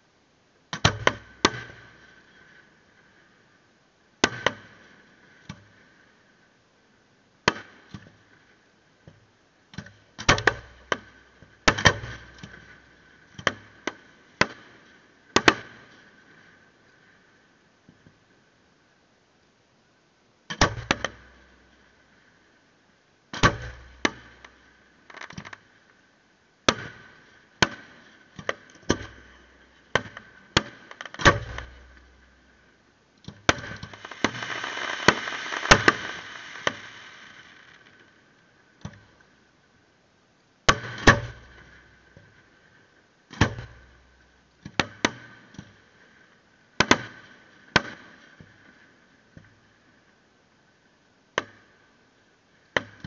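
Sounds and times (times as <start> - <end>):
fireworks bursting with sharp bangs: 33.5 - 38.3
dense fireworks crackling: 33.6 - 38.6.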